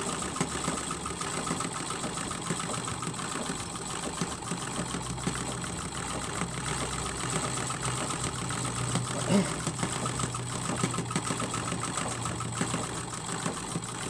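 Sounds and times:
sewing machine running: 0.0 - 14.0.

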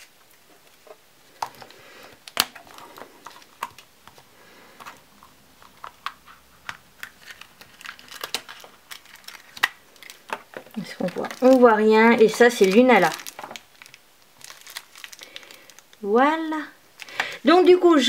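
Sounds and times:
cellophane bag crinkling: 0.0 - 4.8, 5.6 - 16.1, 17.0 - 17.2
plastic capsule clicking and snapping: 5.6 - 11.6.

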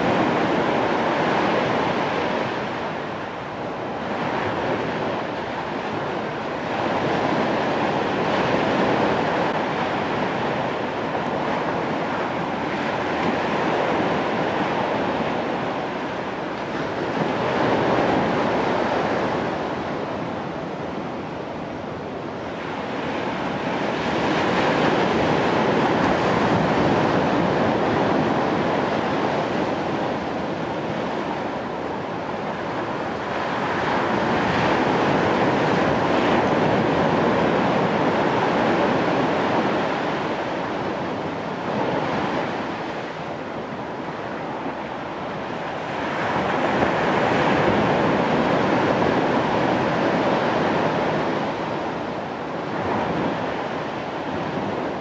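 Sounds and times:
surf breaking on beach: 0.0 - 55.0.

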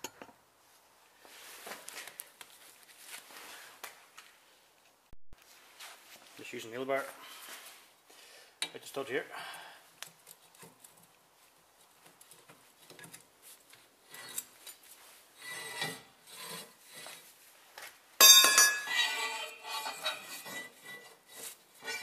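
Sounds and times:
metal clinks and scrapes: 18.2 - 22.0.

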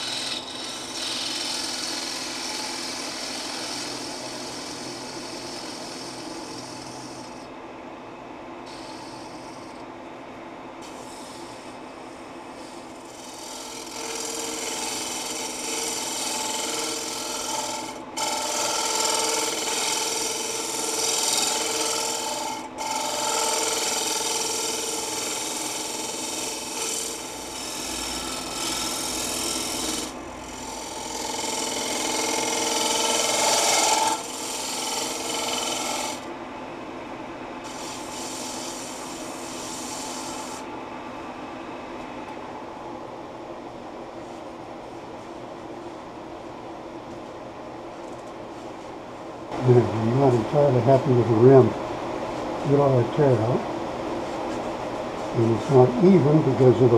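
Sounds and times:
lathe tool scraping wood: 0.0 - 7.5, 8.7 - 9.8, 10.8 - 36.3, 37.6 - 40.7.

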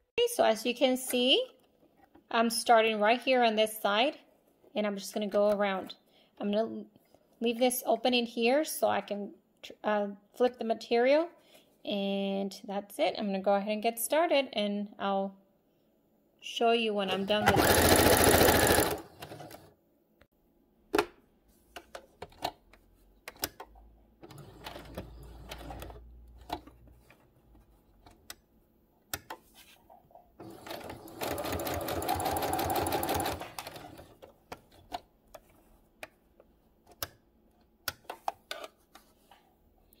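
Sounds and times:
sewing machine stitching: 17.1 - 19.7, 24.2 - 26.6, 30.4 - 34.2.

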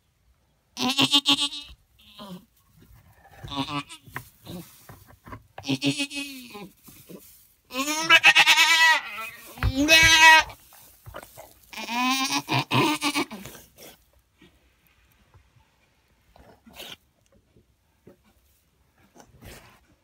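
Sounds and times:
goat bleating: 0.8 - 2.5, 3.4 - 4.8, 5.6 - 6.8, 7.7 - 10.6, 11.7 - 13.7.

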